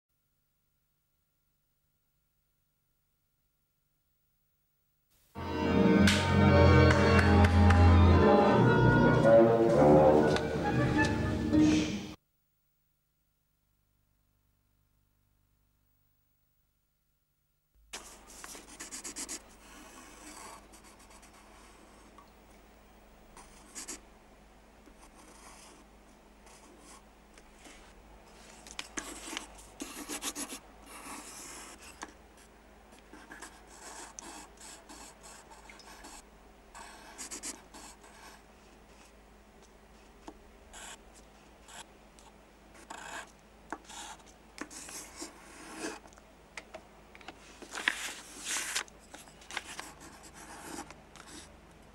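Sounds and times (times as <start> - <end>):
pencil scratching on paper: 18.0 - 22.2, 23.4 - 24.0, 24.9 - 25.9, 26.5 - 27.0, 28.4 - 39.2, 40.7 - 41.9, 42.8 - 46.0, 47.9 - 51.5.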